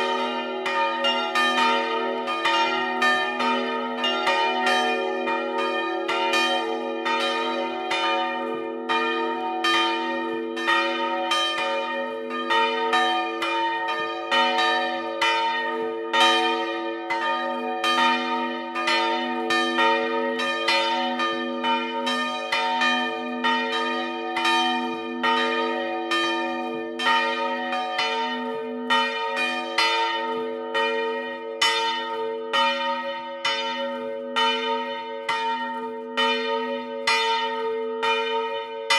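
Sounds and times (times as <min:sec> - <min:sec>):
church bells ringing: 0:00.0 - 0:38.9.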